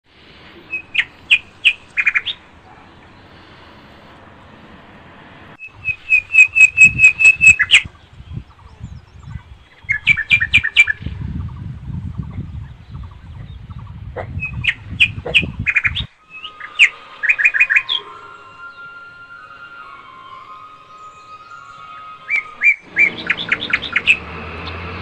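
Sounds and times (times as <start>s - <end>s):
bird chirping: 0.6s - 3.9s, 5.6s - 25.0s
wind rumble on microphone: 5.2s - 16.2s.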